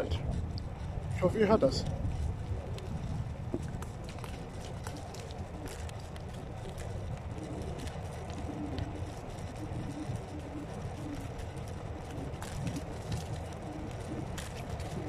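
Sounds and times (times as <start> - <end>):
electric scooter tyres rumbling: 0.0 - 15.0
small clicks and crackles: 0.0 - 15.0.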